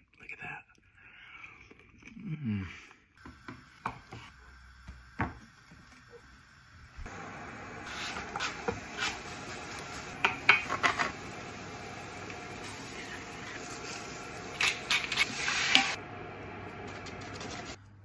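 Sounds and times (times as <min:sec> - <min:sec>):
onion frying in a pan: 0:03.2 - 0:17.8
grater and utensils scraping: 0:16.8 - 0:17.8.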